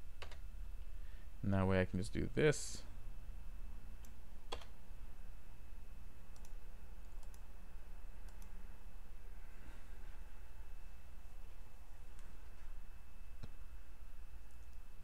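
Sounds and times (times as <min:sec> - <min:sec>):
steady low hum: 0:00.0 - 0:15.0
keyboard and mouse clicks: 0:00.2 - 0:00.4, 0:04.0 - 0:04.8, 0:06.3 - 0:07.5, 0:08.2 - 0:08.6.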